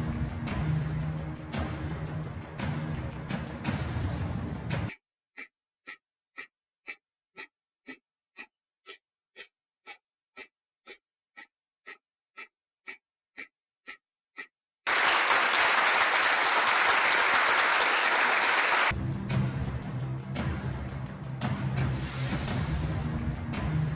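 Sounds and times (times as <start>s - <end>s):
clock ticking: 1.6s - 14.6s
applause: 14.9s - 19.0s.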